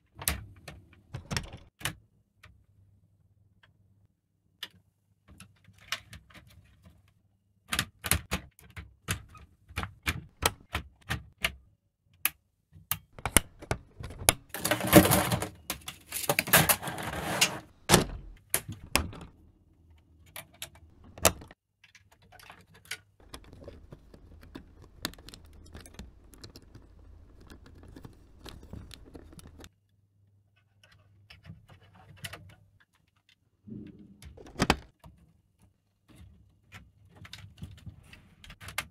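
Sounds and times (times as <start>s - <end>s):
plastic parts clicking together: 7.7s - 16.6s.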